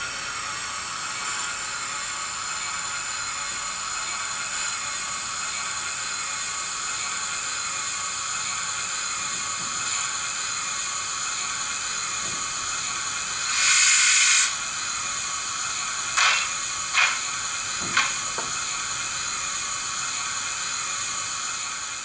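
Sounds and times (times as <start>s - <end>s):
steady steam hiss: 7.5s - 22.0s
sharp steam puffs: 13.4s - 14.6s, 16.2s - 17.4s
blast of steam: 13.5s - 14.6s, 16.2s - 17.2s.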